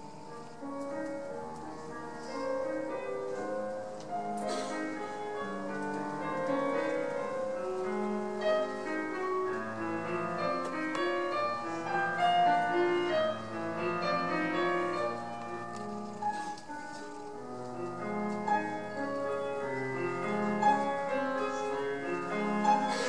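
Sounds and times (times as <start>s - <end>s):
classical piano music: 0.0s - 23.0s.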